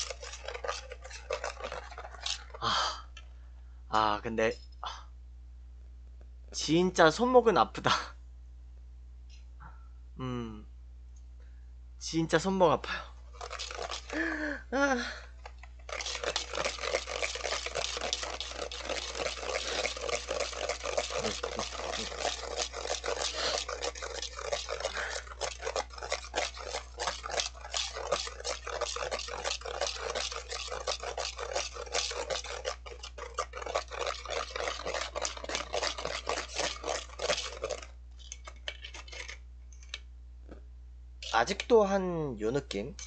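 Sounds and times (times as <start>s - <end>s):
whisk scraping metal bowl: 0.0s - 2.8s, 12.9s - 14.2s, 15.4s - 39.4s, 41.2s - 41.8s.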